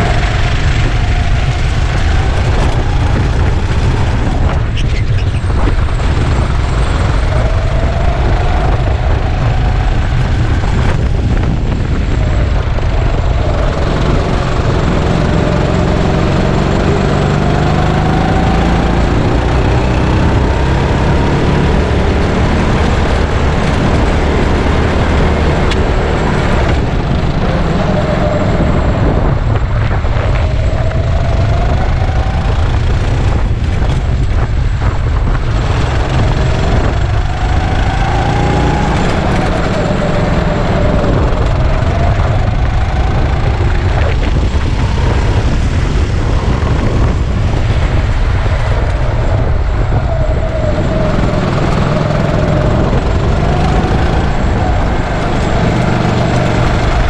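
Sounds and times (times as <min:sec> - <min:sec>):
go-kart engine revving: 0:00.0 - 0:57.0
heavy low rumble: 0:00.0 - 0:57.0.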